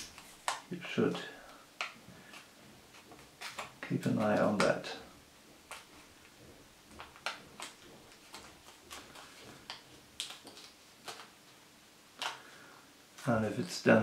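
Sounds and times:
banknote crackling and crinkling: 0:00.0 - 0:13.9.

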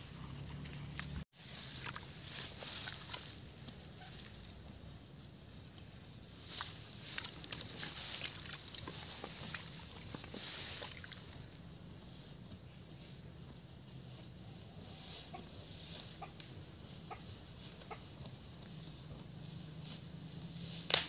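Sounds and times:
cattle tearing grass: 0:00.5 - 0:03.8, 0:06.4 - 0:11.3.

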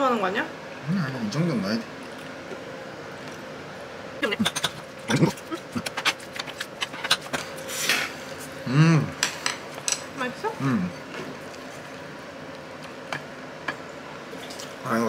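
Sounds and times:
person humming: 0:08.6 - 0:09.2, 0:10.6 - 0:11.0
tableware clicking on bowls: 0:09.2 - 0:10.1.

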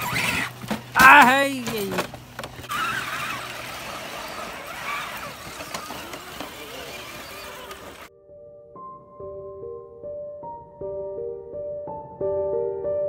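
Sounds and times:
electric motors whining: 0:00.0 - 0:08.1
tyres scrabbling on stone: 0:00.0 - 0:08.1.

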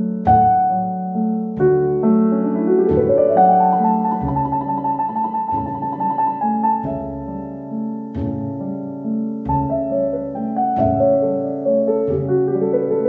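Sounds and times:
piano music: 0:00.0 - 0:13.0.

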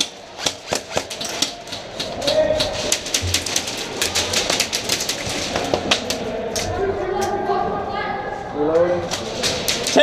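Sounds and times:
airsoft guns firing: 0:00.0 - 0:01.7.

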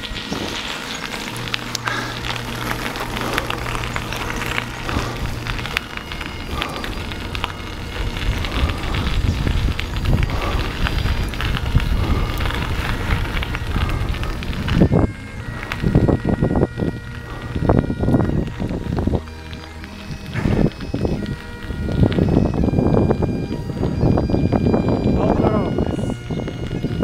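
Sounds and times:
bicycle tyres on gravel: 0:00.0 - 0:27.0
wind rumbling on microphone: 0:00.0 - 0:27.0.

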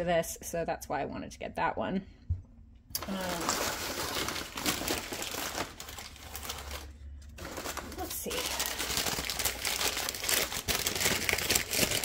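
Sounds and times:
paper bag crinkling: 0:03.0 - 0:12.0.

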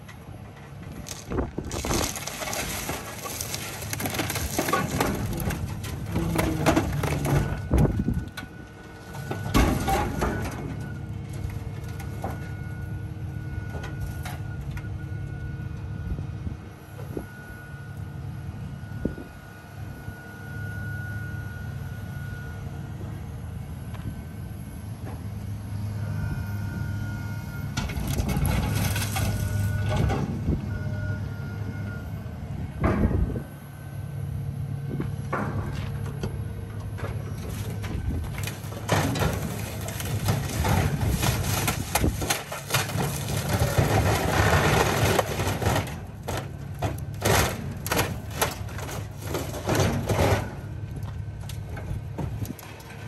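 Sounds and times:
car crusher engine running: 0:00.0 - 0:15.9, 0:21.6 - 0:53.0
metal crunching and cracking: 0:00.5 - 0:12.5, 0:27.8 - 0:30.3, 0:36.9 - 0:53.0.

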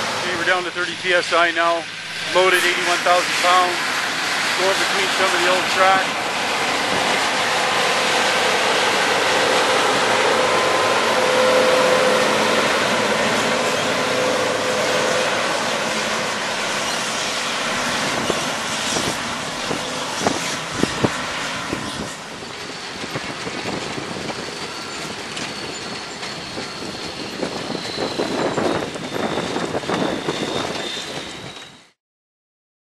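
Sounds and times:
diesel truck engine pulling: 0:00.0 - 0:31.5
thin high squeal: 0:21.9 - 0:32.0.

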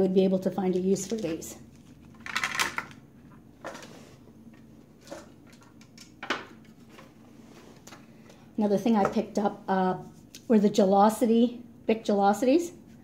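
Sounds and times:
plastic pens clattering: 0:00.7 - 0:03.0.

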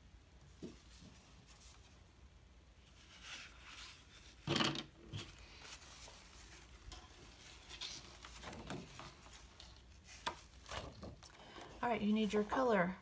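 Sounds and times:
paper rustling: 0:02.8 - 0:12.7.

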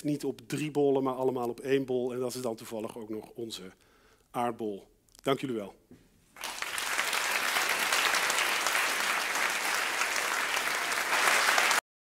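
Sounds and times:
audience applauding: 0:06.4 - 0:11.8.

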